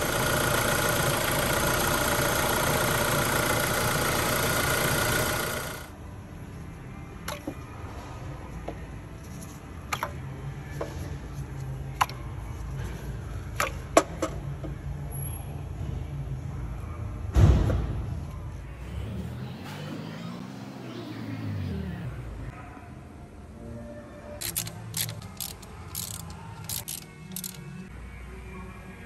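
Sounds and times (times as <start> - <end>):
car engine running: 0.0 - 5.9.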